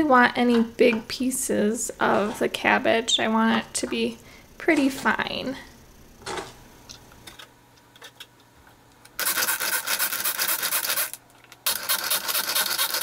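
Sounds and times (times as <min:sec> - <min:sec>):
pull-cord food chopper whirring: 0:09.2 - 0:13.0.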